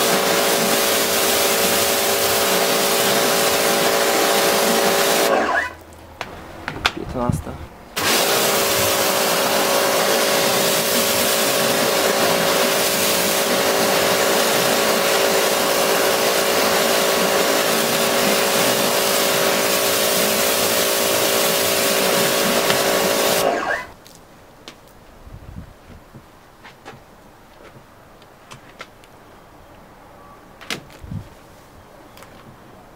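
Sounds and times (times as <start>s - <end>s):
water jet spraying on car: 0.0s - 5.6s, 8.0s - 23.9s
pressure washer pump hum: 0.0s - 7.0s, 8.0s - 23.9s.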